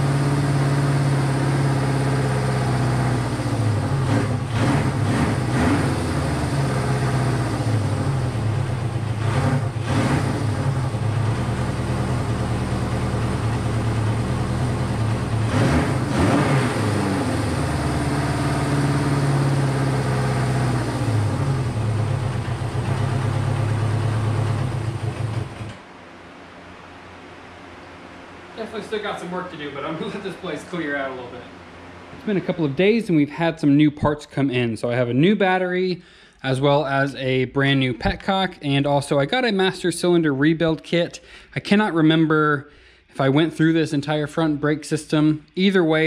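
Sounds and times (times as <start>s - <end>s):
motorcycle engine idling and revving: 0.0s - 25.8s.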